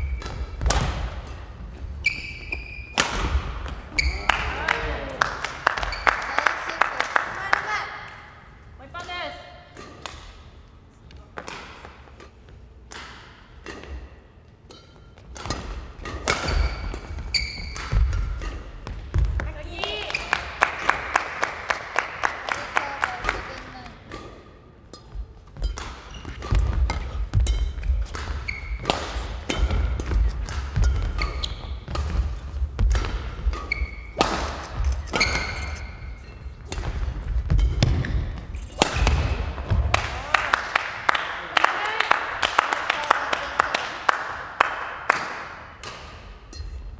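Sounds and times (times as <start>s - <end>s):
shoes squeaking on court floor: 0.0s - 4.6s, 5.7s - 6.3s, 9.8s - 20.6s, 23.4s - 39.8s
rackets striking shuttlecock: 0.0s - 6.0s, 9.0s - 10.6s, 11.4s - 40.7s, 45.1s - 46.9s.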